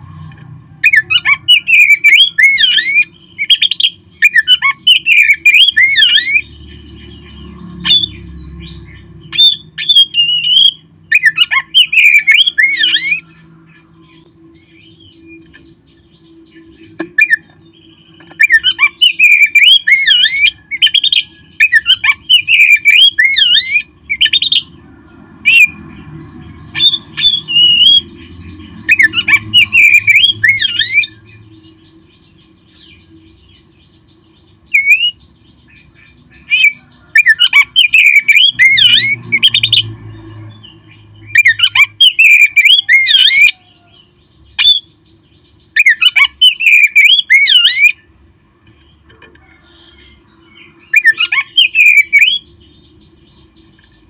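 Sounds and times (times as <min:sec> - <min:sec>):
bird singing whistled phrases: 0:00.8 - 0:06.5, 0:09.3 - 0:13.3, 0:16.6 - 0:24.6, 0:26.8 - 0:28.1, 0:28.9 - 0:31.2, 0:34.7 - 0:35.2, 0:41.3 - 0:43.7, 0:45.8 - 0:48.0, 0:50.9 - 0:52.5.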